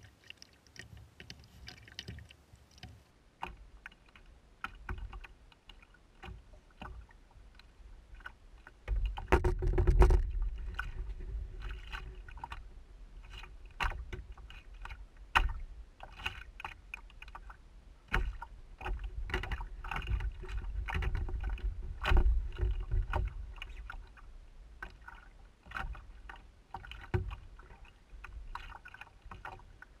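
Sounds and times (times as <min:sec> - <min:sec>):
water slapping against canoe hull: 0:00.0 - 0:30.0.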